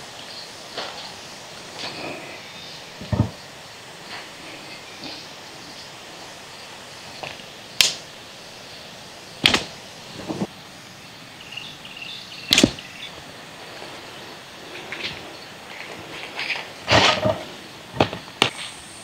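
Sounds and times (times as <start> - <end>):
dry twigs snapping and swishing: 7.2 - 8.1, 9.4 - 10.5, 12.5 - 12.9.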